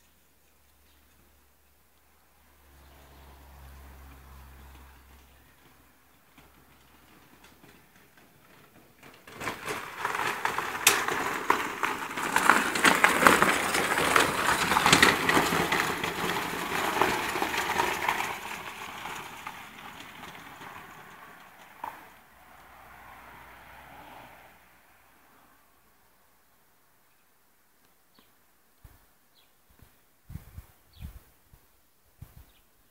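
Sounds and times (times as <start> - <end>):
tyres crunching over gravel: 4.5 - 23.1.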